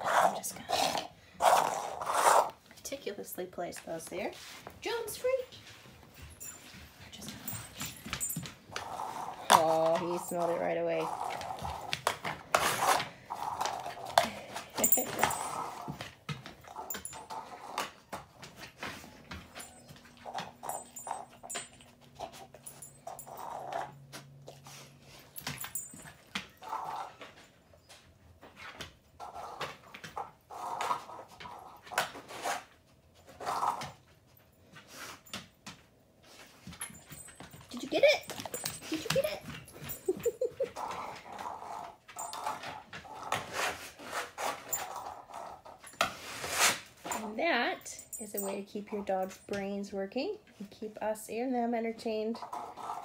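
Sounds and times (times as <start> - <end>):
dog claws clicking on wood floor: 7.2 - 24.6.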